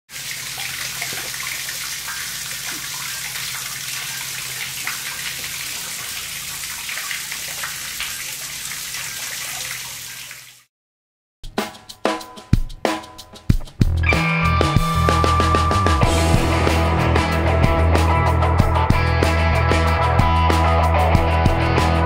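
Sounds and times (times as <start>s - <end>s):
water dripping and splashing: 0.1s - 10.7s
water trickling into manhole: 0.1s - 10.7s.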